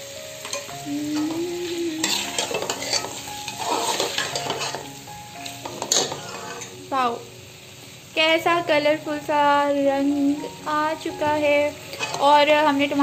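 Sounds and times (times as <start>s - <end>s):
sauce sizzling: 0.0s - 13.0s
spoon scraping steel pot: 2.0s - 4.8s, 5.7s - 6.7s, 11.9s - 12.4s.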